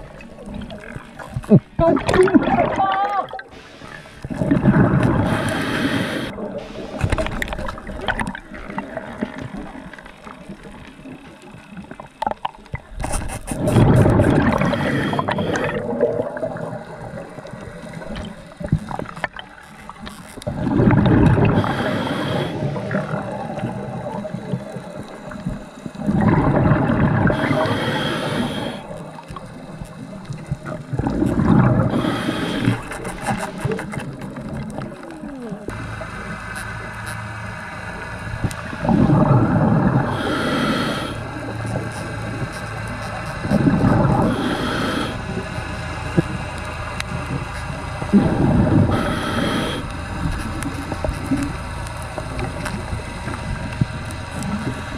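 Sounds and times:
exhaust bubbles from regulator: 0:00.0 - 0:12.9, 0:13.6 - 0:19.6, 0:20.4 - 0:54.9
faint steady hum: 0:00.0 - 0:54.9
diver inhaling: 0:03.5 - 0:07.2, 0:14.3 - 0:16.1, 0:20.6 - 0:23.3, 0:27.3 - 0:29.0, 0:31.8 - 0:33.8, 0:38.8 - 0:41.7, 0:43.7 - 0:45.5, 0:48.1 - 0:50.3.

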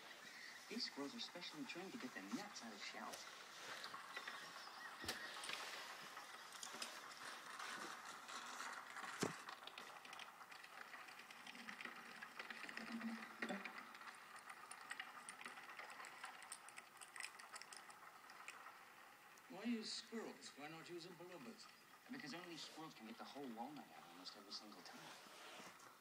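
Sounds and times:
squirrels cracking walnut shells: 0:00.1 - 0:19.5.

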